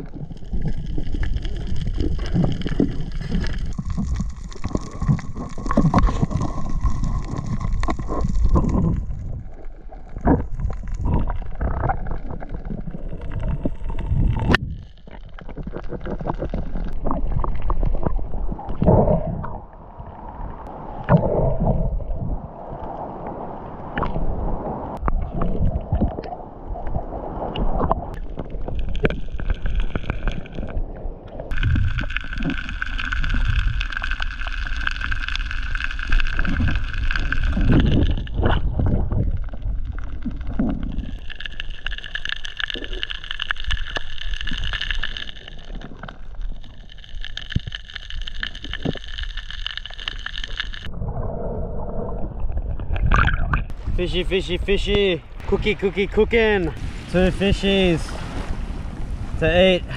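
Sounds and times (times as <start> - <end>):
underwater rushing and gurgling: 0.0 - 59.9.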